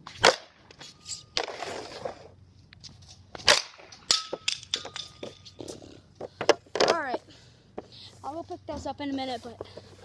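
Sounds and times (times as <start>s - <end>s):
hockey stick slap and scrape: 0.0s - 7.0s.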